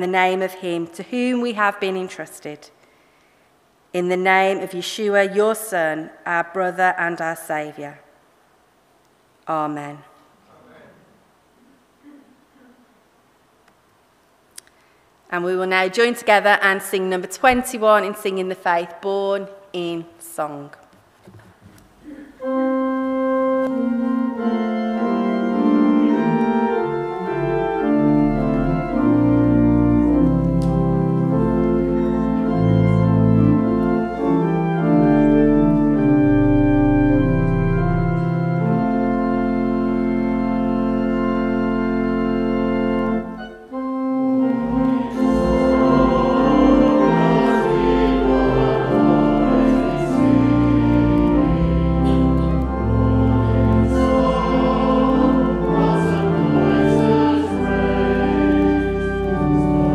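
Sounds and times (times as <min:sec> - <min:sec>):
organ playing held chords: 0:22.3 - 0:59.9
congregation singing a hymn: 0:22.4 - 0:40.0, 0:43.0 - 0:59.9.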